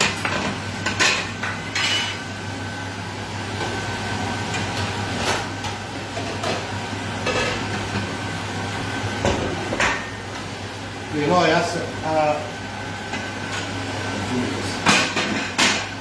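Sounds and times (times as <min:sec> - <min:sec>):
low kitchen hum: 0:00.0 - 0:16.0
dishes clinking: 0:00.2 - 0:02.2.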